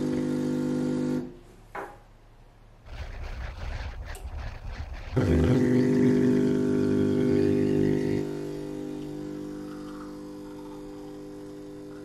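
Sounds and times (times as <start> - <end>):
espresso machine pump humming: 5.1 - 12.0.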